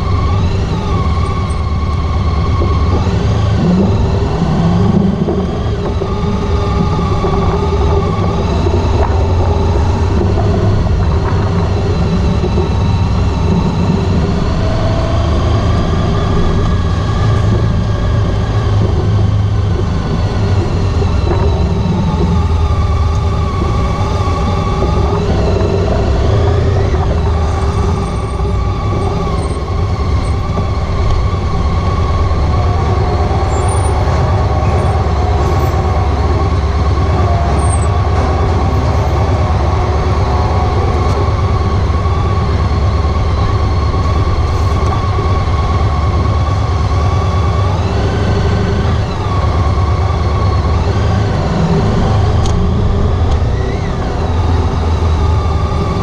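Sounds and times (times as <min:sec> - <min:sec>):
motorcycle engine rumble: 0:00.0 - 0:56.0
road noise: 0:00.0 - 0:56.0.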